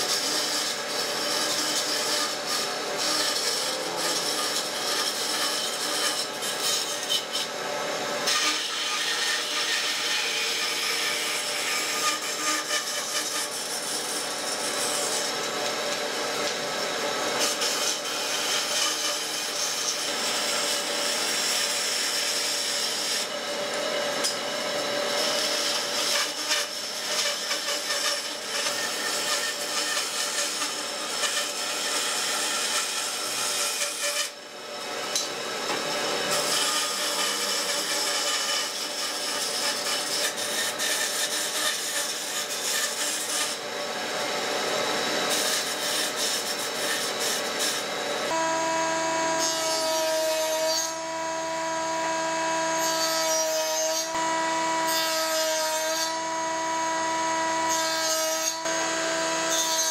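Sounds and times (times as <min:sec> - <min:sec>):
bandsaw cutting wood: 0:00.0 - 0:59.9.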